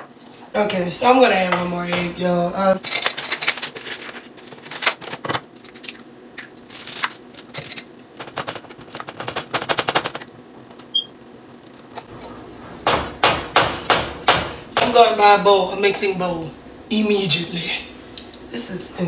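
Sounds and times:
whisk rattling against bowl: 8.2s - 10.3s.

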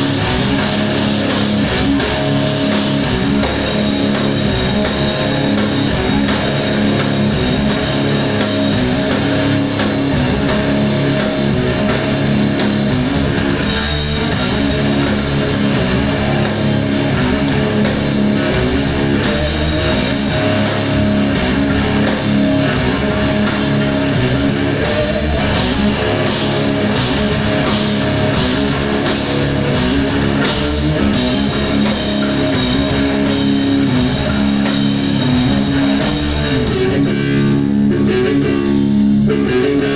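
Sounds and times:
bass guitar: 0.0s - 39.9s
drum kit: 0.0s - 39.9s
electric guitars: 0.0s - 39.9s.

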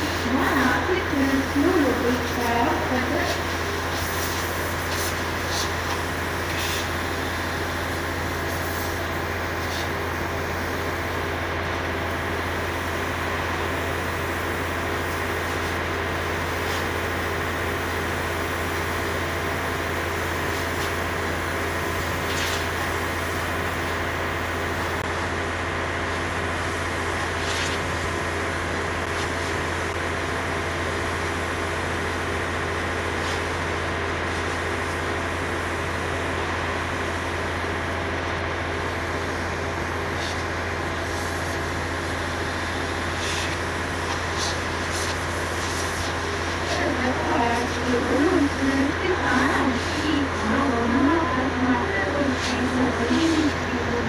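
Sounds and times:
large engine droning: 46.2s - 54.0s.

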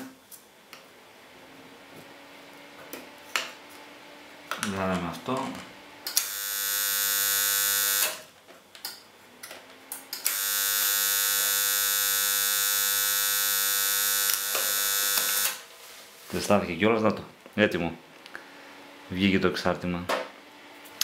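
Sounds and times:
transformer buzzing loudly: 6.2s - 8.3s, 10.2s - 15.6s.

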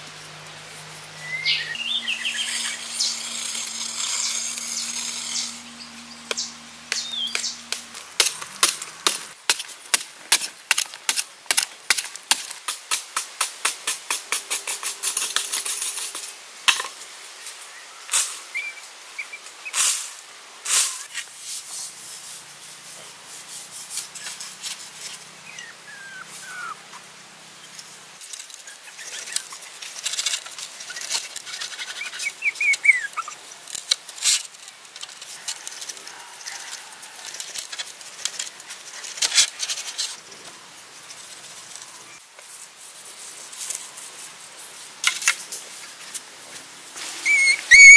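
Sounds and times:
awl scraping bamboo: 0.7s - 9.4s, 20.7s - 26.8s, 28.2s - 46.3s
bird chirps: 1.2s - 7.7s.

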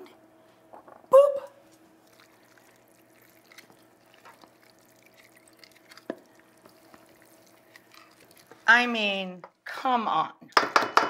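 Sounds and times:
wet squelching of pasta stirred: 1.6s - 9.2s.

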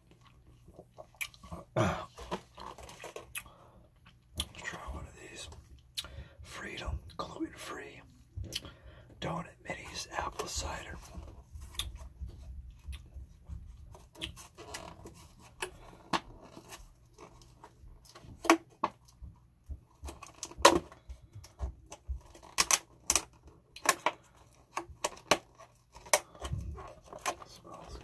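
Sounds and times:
plastic container crinkling and clicking: 20.0s - 28.0s.

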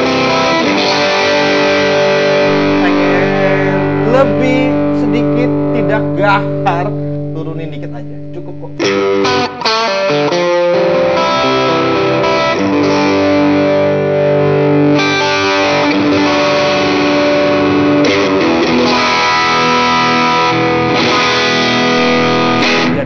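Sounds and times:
overdriven electric guitar chords: 0.0s - 23.0s.

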